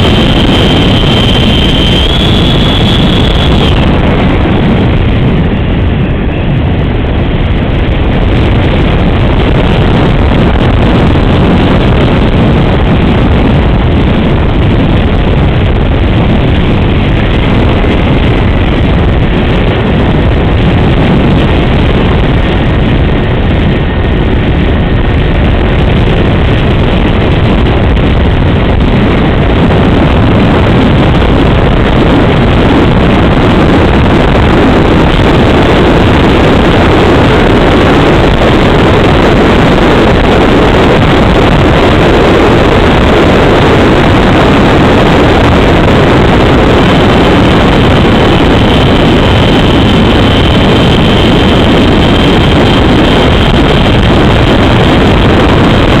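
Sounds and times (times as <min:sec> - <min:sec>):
electric ducted fan running: 0:00.0 - 0:56.0
wind noise on microphone: 0:00.0 - 0:56.0.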